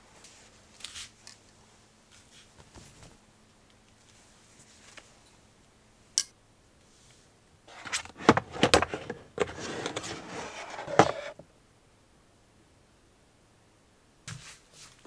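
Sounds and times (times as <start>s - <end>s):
plastic box scraping and sliding: 7.7s - 11.4s.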